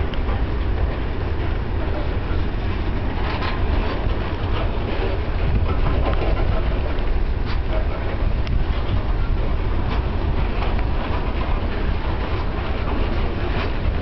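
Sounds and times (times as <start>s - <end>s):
train wheels rumbling on rail: 0.0s - 14.0s
clicks and clanks: 3.2s - 14.0s.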